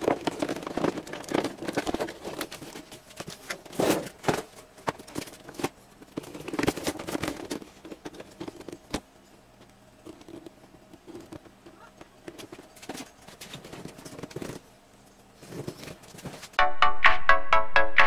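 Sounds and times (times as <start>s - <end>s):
plastic and cardboard packaging crinkling: 0.0s - 9.0s, 15.3s - 16.6s.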